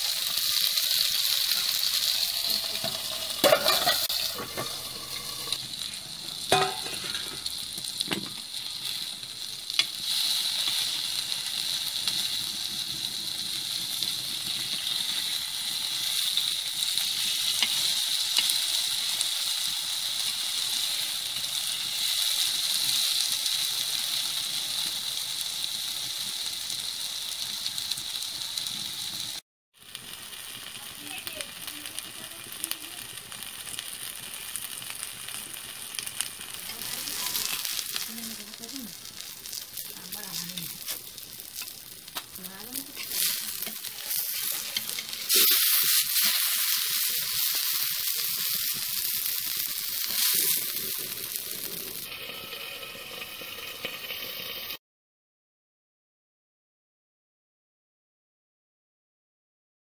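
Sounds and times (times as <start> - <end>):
okra sizzling in oil: 0.0 - 54.8
metal lid and spatula clinking: 2.7 - 5.6, 6.5 - 7.4.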